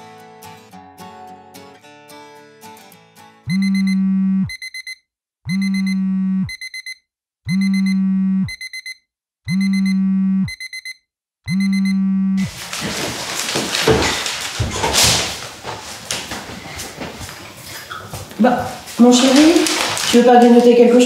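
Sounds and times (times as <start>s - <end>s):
alarm low buzz: 3.5s - 4.9s, 5.5s - 12.5s
alarm high beeps: 3.5s - 12.5s.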